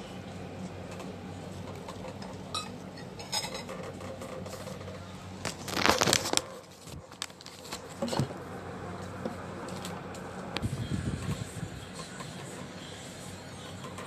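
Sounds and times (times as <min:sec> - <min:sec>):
paper wrapping rustling: 0:05.5 - 0:08.1.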